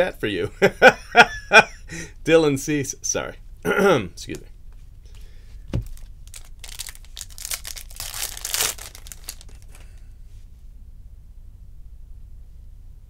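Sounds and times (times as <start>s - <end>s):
soft thump: 5.7s - 5.9s
foil wrapper crinkling and tearing: 5.8s - 10.0s.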